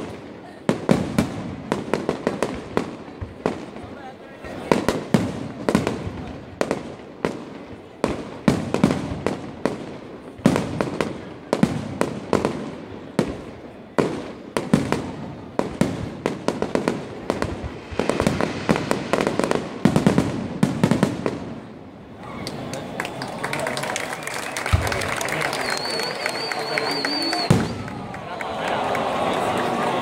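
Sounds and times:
firework shells bursting: 16.5s - 21.9s.

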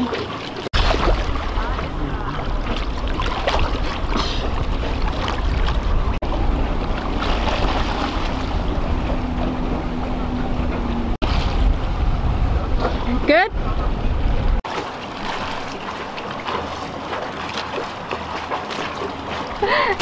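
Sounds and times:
water slapping and splashing: 0.0s - 20.0s
wind buffeting microphone: 0.7s - 14.6s.

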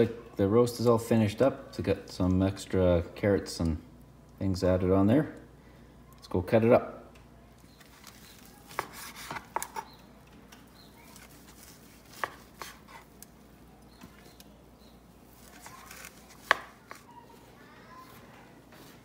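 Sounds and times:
knife slicing meat: 8.2s - 10.0s, 11.1s - 13.2s, 15.3s - 17.0s
knife tapping cutting board: 16.4s - 17.0s.

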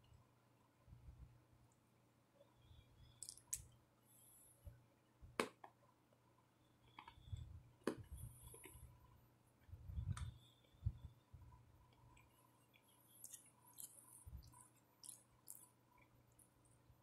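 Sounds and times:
chewing crunches and mouth clicks: 3.2s - 3.6s, 12.2s - 16.6s.

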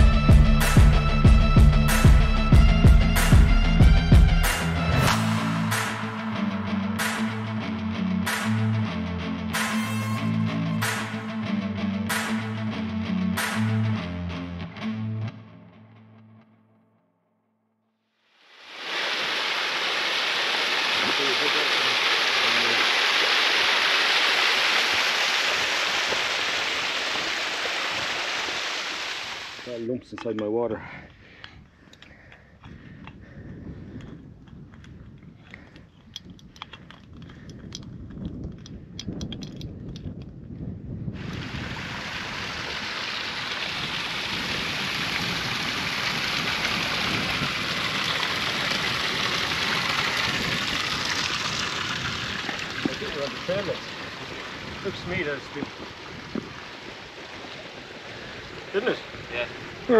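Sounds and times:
waterfall and stream running: 18.4s - 29.9s, 41.2s - 59.9s.

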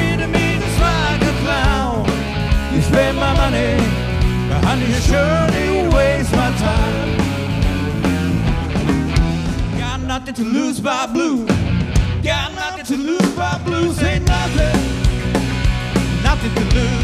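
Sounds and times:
rock band playing live: 0.0s - 17.0s.

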